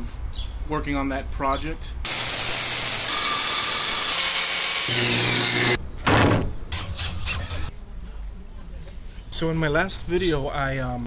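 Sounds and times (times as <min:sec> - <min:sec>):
circular saw cutting wood: 0:02.1 - 0:05.8, 0:06.7 - 0:07.7
cordless drill bursts: 0:02.1 - 0:05.8.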